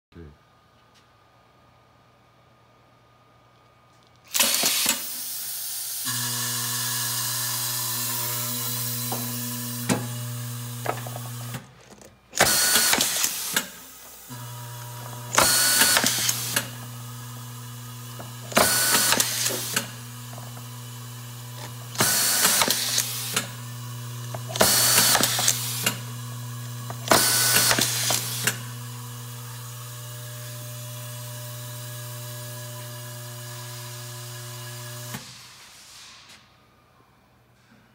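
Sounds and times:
pneumatic screwdriver hissing bursts: 4.3s - 6.1s, 12.4s - 14.3s, 15.3s - 16.8s, 18.5s - 20.0s, 21.9s - 23.6s, 24.4s - 26.0s, 27.0s - 28.6s.

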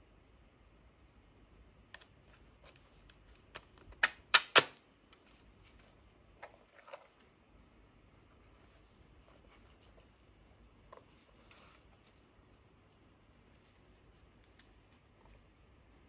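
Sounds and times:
sharp plastic clacks: 1.9s - 5.2s.

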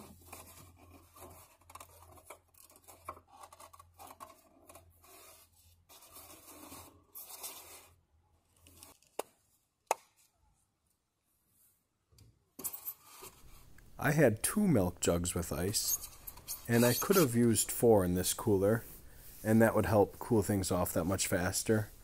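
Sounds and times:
rubbing and scraping on foam: 0.0s - 8.0s, 12.7s - 13.8s, 15.6s - 22.0s.

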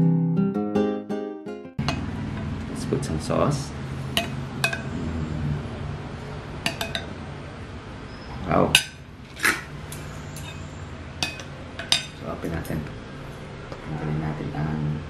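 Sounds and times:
cutlery clinking on ceramic plates: 4.2s - 4.9s, 6.7s - 7.1s, 8.7s - 12.8s.

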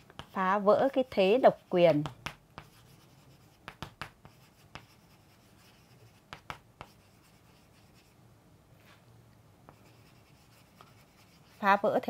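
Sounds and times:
chalk tapping on board: 0.0s - 0.5s, 1.9s - 8.1s, 9.7s - 11.6s
chalk scratching on chalkboard: 0.0s - 8.2s, 9.7s - 12.0s.

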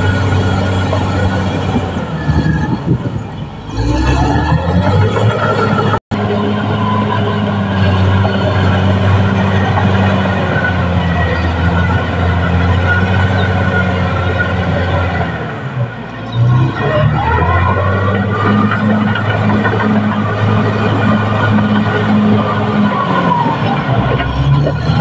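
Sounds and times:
bulldozer engine running: 0.0s - 25.0s.

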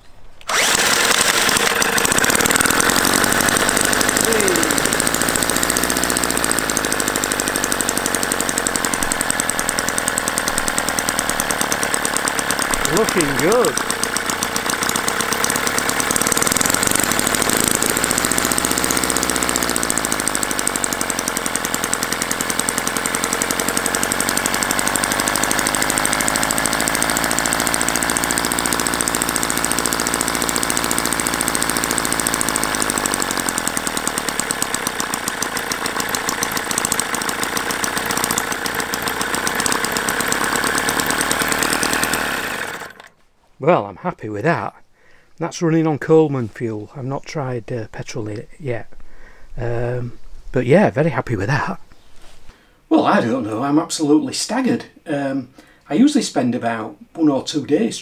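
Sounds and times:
small model engine running: 0.5s - 43.1s.

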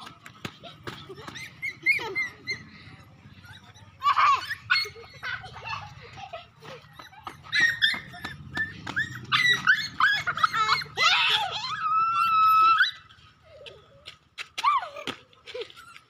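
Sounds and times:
puppy whining and yelping: 1.1s - 13.2s.

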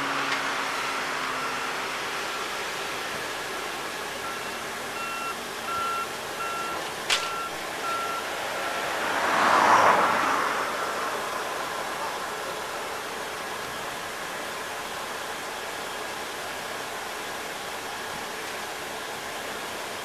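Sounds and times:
reversing alarm beeping: 0.8s - 2.7s, 4.1s - 8.8s
sharp click: 7.1s - 7.6s.

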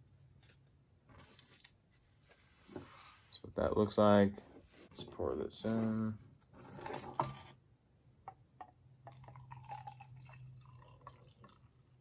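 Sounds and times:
water trickling into mug: 9.0s - 12.0s.

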